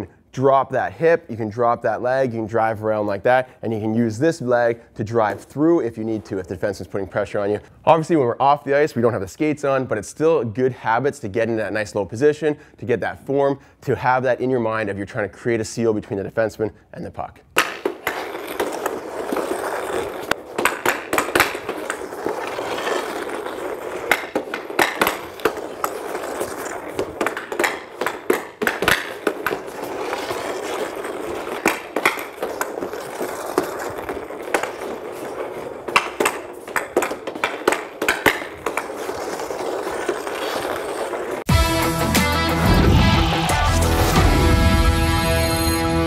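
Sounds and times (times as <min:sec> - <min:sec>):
hockey blade and puck sliding: 0:00.0 - 0:12.5, 0:17.4 - 0:46.0
stick clicking on puck: 0:17.6 - 0:41.3.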